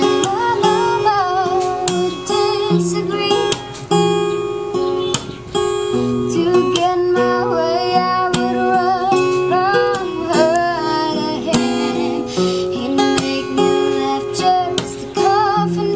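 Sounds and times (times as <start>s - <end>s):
person singing: 0.0s - 3.8s, 6.2s - 15.9s
strummed acoustic guitar: 0.0s - 15.9s.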